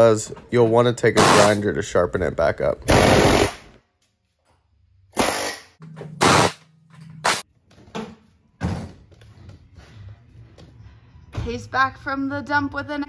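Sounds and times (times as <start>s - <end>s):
pneumatic air hammer on steel: 5.1s - 6.6s.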